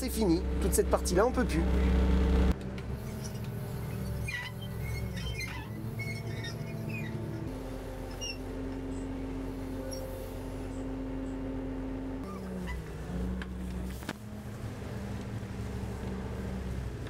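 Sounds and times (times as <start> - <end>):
boat engine humming: 0.0 - 17.0
faint high squeaks: 3.0 - 10.8, 12.2 - 13.0.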